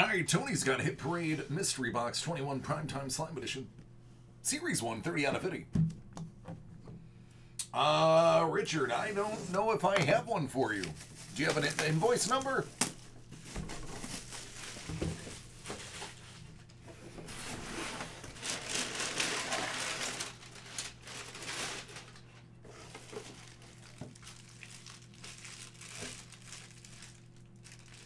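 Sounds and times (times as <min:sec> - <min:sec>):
faint steady hum: 0:00.0 - 0:28.0
plastic wrapping crinkling: 0:09.0 - 0:16.8, 0:17.4 - 0:28.0
cardboard box rustling: 0:17.2 - 0:24.3.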